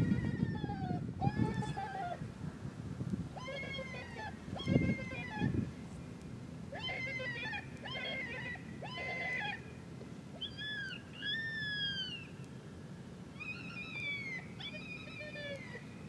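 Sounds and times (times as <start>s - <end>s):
predator call cries and wails: 3.4s - 5.5s, 6.8s - 9.6s.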